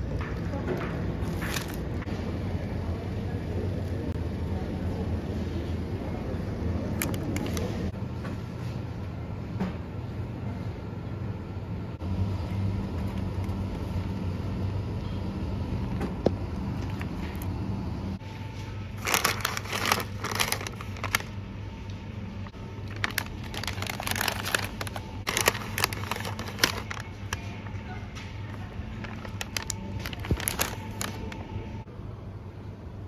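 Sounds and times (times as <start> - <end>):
refrigerated shelf humming: 0.0 - 33.0
plastic pouches crinkling: 1.2 - 2.0, 18.9 - 21.4, 22.8 - 27.7, 28.4 - 31.6.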